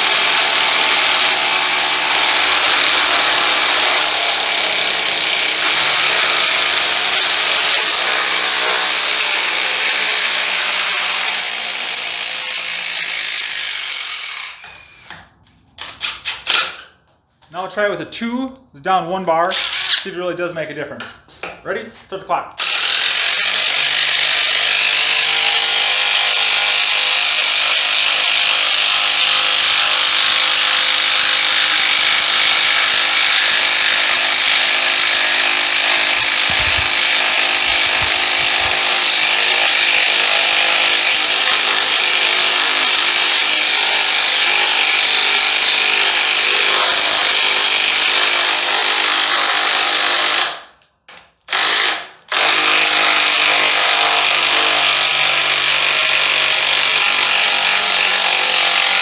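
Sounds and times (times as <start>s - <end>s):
impact wrench hammering: 22.6s - 59.0s.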